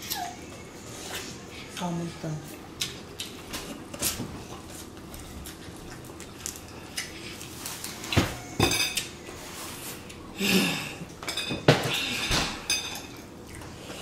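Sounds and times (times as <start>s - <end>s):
chewing and mouth smacking: 2.7s - 8.2s.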